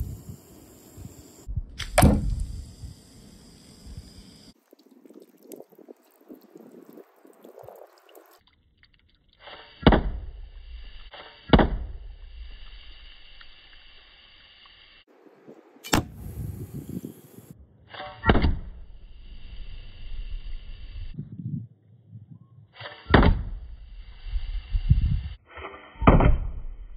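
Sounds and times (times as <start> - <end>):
faint hiss: 0.0 - 8.4, 12.2 - 17.6, 18.8 - 21.2.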